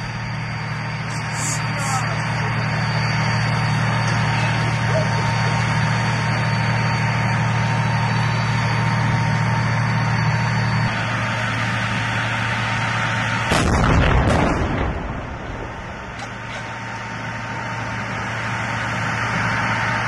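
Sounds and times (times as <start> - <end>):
tank engine droning: 0.0 - 20.0
loud blast: 13.4 - 17.0.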